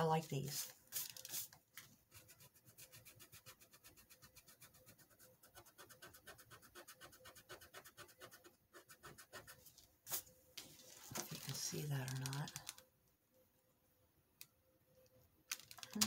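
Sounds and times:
eraser scratching on paper: 0:02.1 - 0:10.2.

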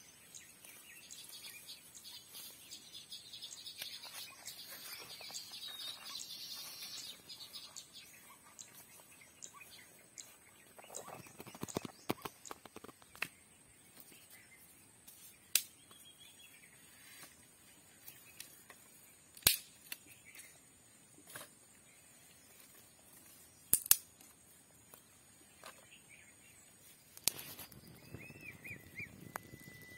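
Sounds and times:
sticks snapping: 0:15.5 - 0:15.8, 0:19.3 - 0:20.1, 0:23.7 - 0:24.3, 0:27.2 - 0:27.8
faint chirping: 0:25.1 - 0:29.9.

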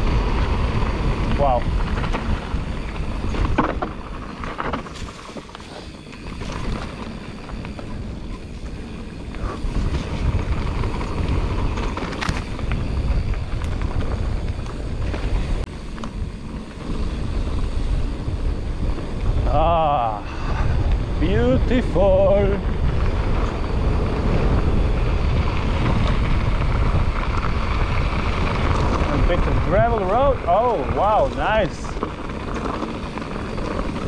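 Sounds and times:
bike tyres rumbling: 0:00.0 - 0:34.0
wind on microphone: 0:00.0 - 0:34.0
bike clicks and knocks: 0:00.4 - 0:18.0, 0:25.4 - 0:34.0.

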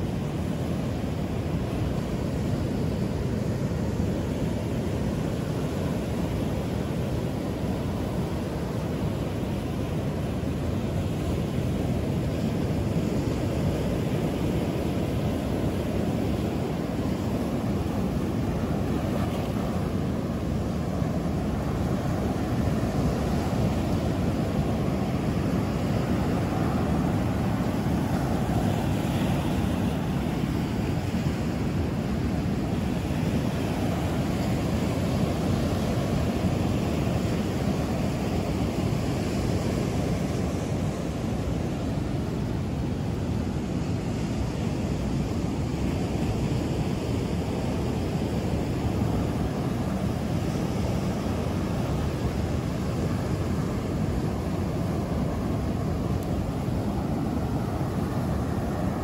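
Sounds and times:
ocean surf on beach: 0:00.0 - 0:59.0.

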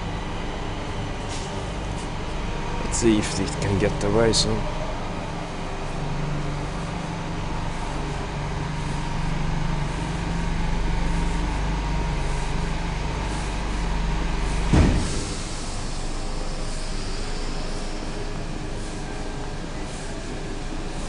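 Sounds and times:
elevator machinery humming: 0:00.0 - 0:21.0
loud clunk: 0:14.7 - 0:15.4.

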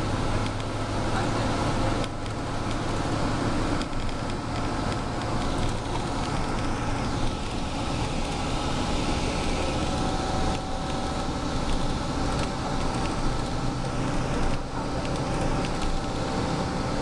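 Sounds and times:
bus engine and road noise: 0:00.0 - 0:17.0
faint clicks and rattles: 0:03.8 - 0:08.4, 0:14.4 - 0:16.2.

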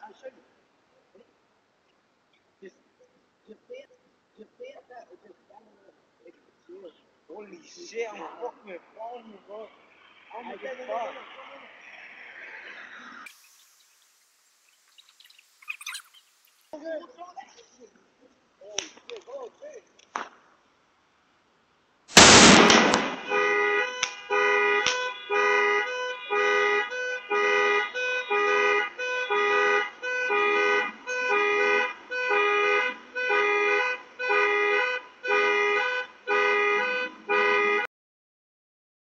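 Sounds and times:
firecracker bang: 0:22.1 - 0:24.2
car alarm horn honking: 0:23.2 - 0:37.9.

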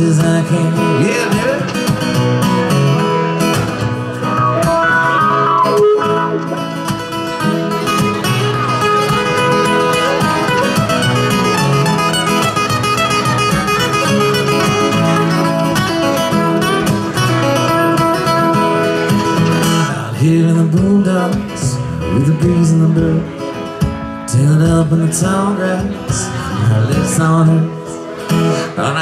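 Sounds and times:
acoustic guitar strumming: 0:00.0 - 0:29.0.

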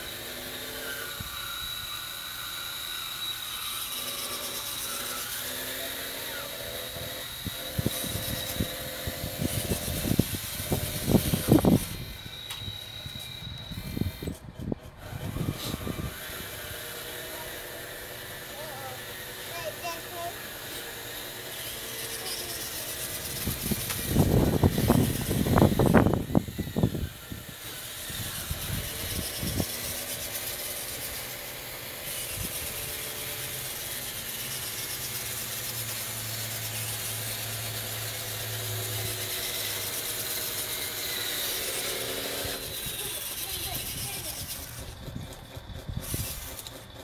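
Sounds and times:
toy bulldozer motors whirring: 0:00.0 - 0:47.0.

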